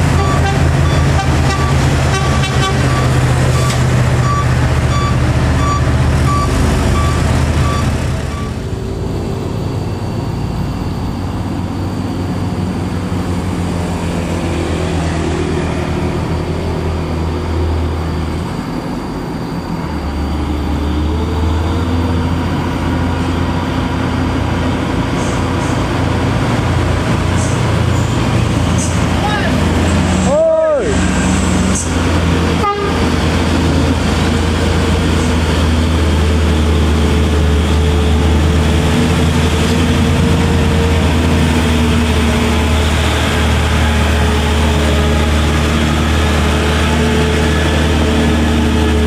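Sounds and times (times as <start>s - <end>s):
truck diesel engine passing: 0.0s - 49.0s
truck engine pulling uphill: 0.0s - 49.0s
short repeating beeps: 2.9s - 8.6s.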